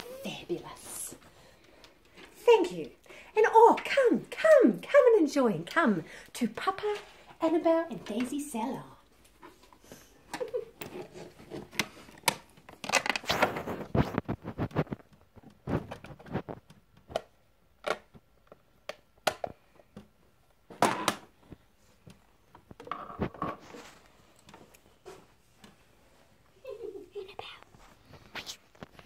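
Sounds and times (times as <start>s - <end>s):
rustling and crinkling: 6.8s - 17.4s, 19.5s - 29.0s
plastic items clicking and tapping: 9.3s - 25.9s.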